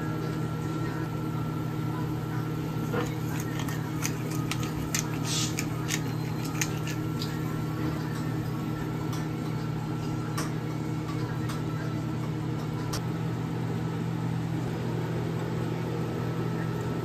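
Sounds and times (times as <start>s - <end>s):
low kitchen hum: 0.0s - 17.0s
pepper grinder clicking and rasping: 2.9s - 7.5s.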